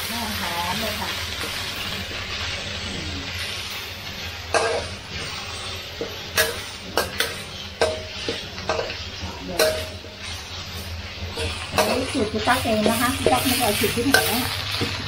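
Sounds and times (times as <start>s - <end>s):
paste sizzling in oil: 0.0s - 15.0s
spatula scraping a pan: 3.3s - 15.0s.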